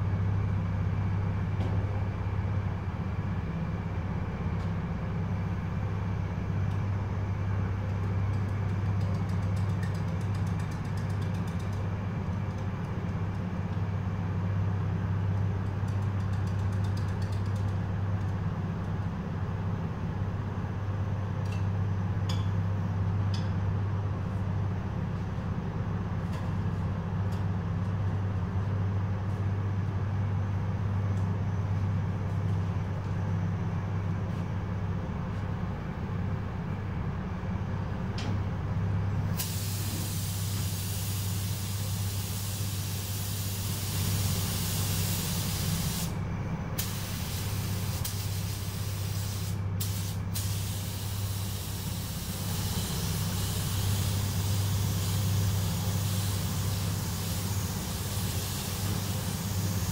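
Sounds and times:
ventilation hum: 0:00.0 - 0:59.9
spray gun hissing: 0:39.4 - 0:46.1, 0:46.8 - 0:59.9.

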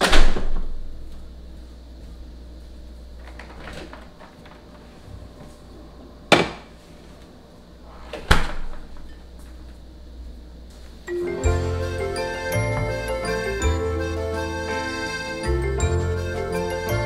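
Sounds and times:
refrigerator door opening and shutting: 0:00.0 - 0:00.9, 0:03.2 - 0:04.8, 0:08.0 - 0:09.1.

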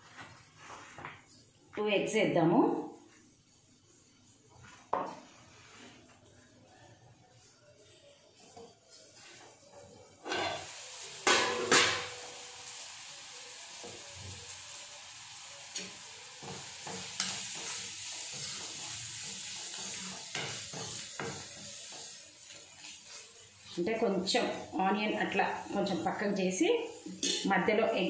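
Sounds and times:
steel spoon scraping pan: 0:10.2 - 0:12.2
onions sizzling in oil: 0:10.2 - 0:28.0.

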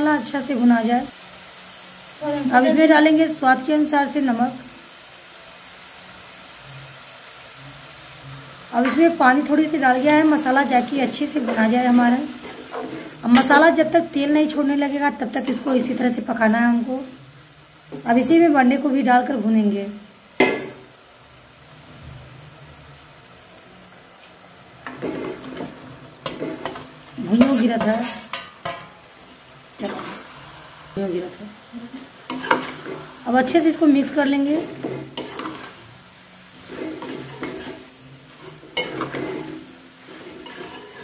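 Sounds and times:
spices sizzling in oil: 0:00.0 - 0:41.0
steel ladle scraping a pan: 0:08.8 - 0:13.7, 0:24.8 - 0:29.0, 0:29.8 - 0:30.4, 0:32.2 - 0:33.6, 0:34.5 - 0:41.0
food sliding off steel plate: 0:36.6 - 0:41.0.

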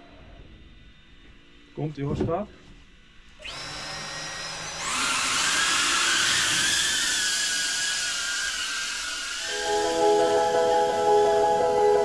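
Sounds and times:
quadcopter motors whining: 0:03.3 - 0:12.0.

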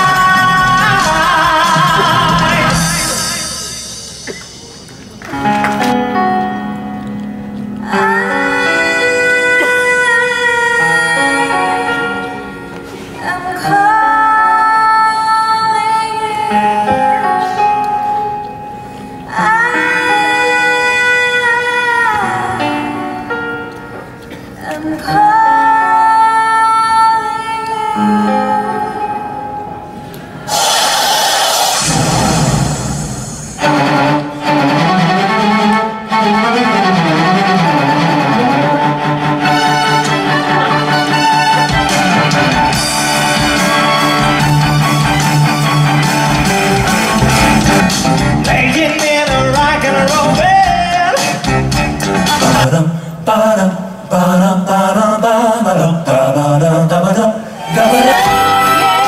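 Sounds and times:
woman singing: 0:00.0 - 0:02.8, 0:07.8 - 0:12.4, 0:13.2 - 0:17.5, 0:19.3 - 0:23.0, 0:24.6 - 0:29.4
instrumental accompaniment: 0:00.0 - 0:15.1, 0:28.2 - 0:52.8.

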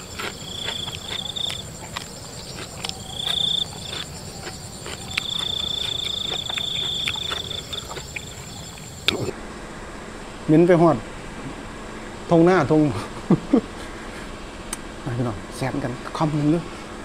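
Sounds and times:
chewing clicks: 0:00.0 - 0:09.3
crickets trilling: 0:00.0 - 0:10.2.

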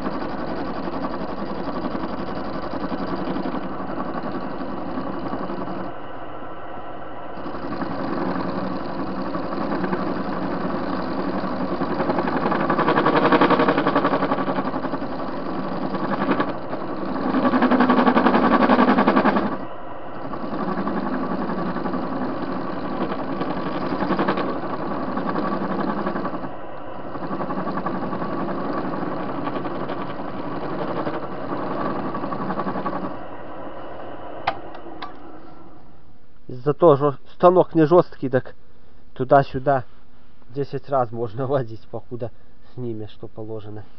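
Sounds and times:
lathe cutting metal: 0:00.0 - 0:06.0, 0:07.2 - 0:33.6.

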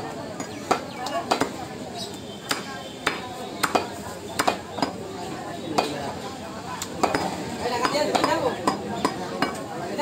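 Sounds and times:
cleaver chopping meat on wood block: 0:00.4 - 0:01.6, 0:02.5 - 0:05.0, 0:07.0 - 0:09.6.

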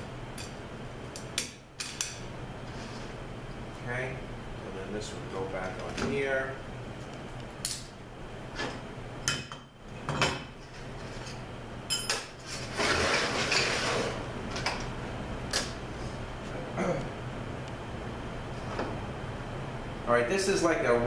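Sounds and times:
metal drum scraping on bench: 0:12.5 - 0:14.2.

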